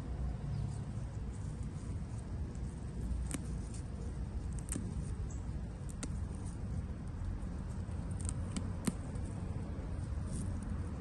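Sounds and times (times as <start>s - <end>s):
leaves rustling: 0.4s - 11.0s
stems snapping: 2.6s - 11.0s.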